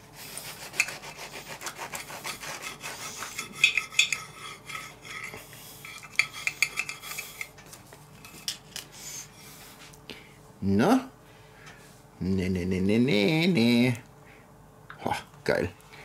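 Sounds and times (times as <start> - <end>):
knife sawing crisp tortilla: 0.0 - 7.5
knife scraping on plate: 0.3 - 7.6.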